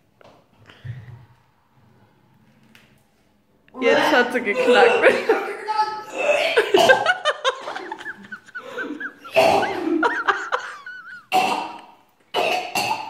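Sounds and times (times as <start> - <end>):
people laughing: 6.4 - 11.3.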